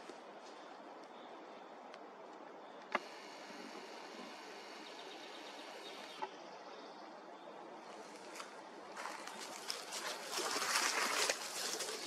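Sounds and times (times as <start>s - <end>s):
single click: 2.8s - 3.1s
twigs crackling and rustling: 7.9s - 12.0s.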